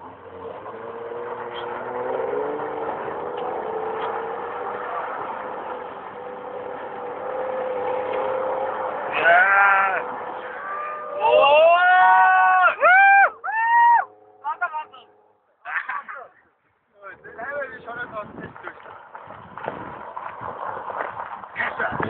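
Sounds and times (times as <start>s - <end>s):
car engine revving hard: 0.0s - 12.0s
person yelling: 9.1s - 14.1s
tyres spraying dust and gravel: 17.3s - 22.0s.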